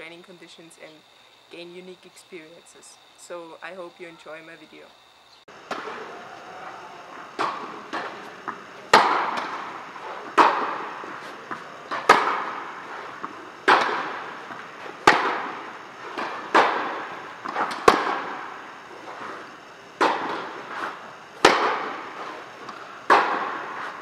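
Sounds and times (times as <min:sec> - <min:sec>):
tennis ball bouncing: 0:05.5 - 0:24.0
tennis ball hit by rackets: 0:05.5 - 0:24.0.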